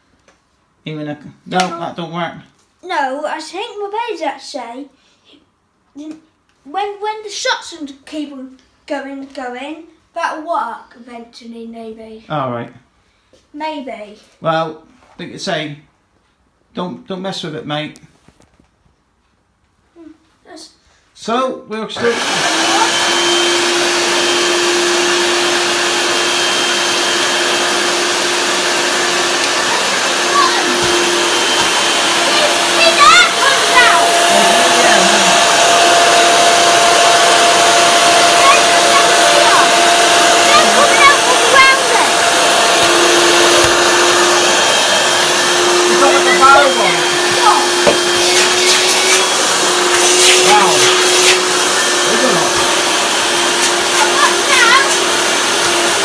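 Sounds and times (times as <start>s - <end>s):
vacuum cleaner running: 22.0s - 56.0s.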